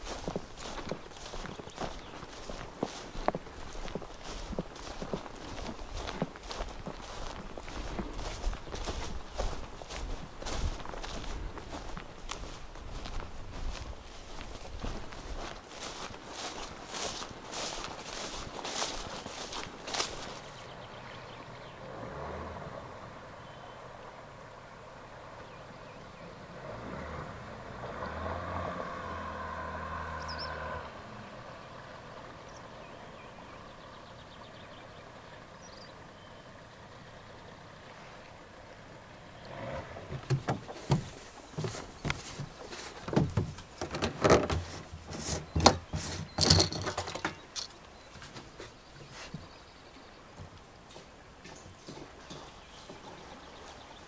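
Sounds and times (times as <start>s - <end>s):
plastic fuel cans knocking: 43.0s - 47.7s.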